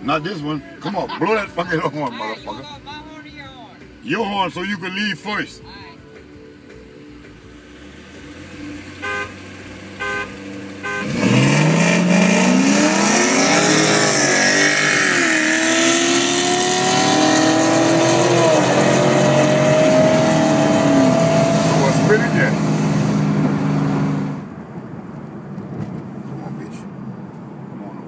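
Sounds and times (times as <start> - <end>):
engine accelerating hard: 7.7 - 24.5
car horn toots: 9.0 - 11.8.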